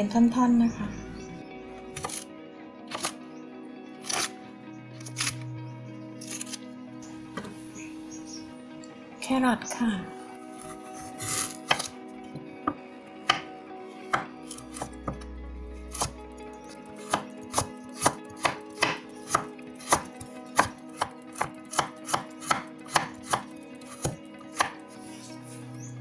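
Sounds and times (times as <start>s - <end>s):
knife chopping on wooden board: 2.0s - 2.2s, 11.2s - 13.5s, 14.1s - 15.2s, 17.0s - 24.8s.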